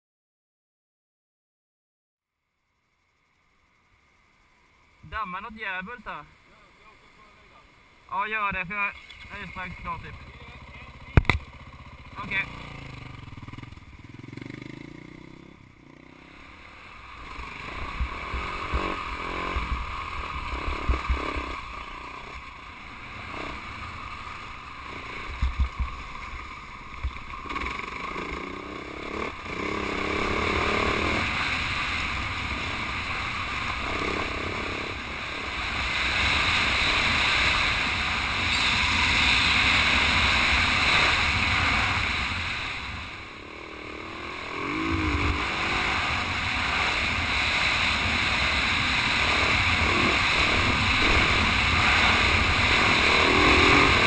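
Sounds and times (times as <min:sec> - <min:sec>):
dirt bike engine running: 0:08.5 - 0:54.0
wind rushing on camera: 0:16.2 - 0:54.0.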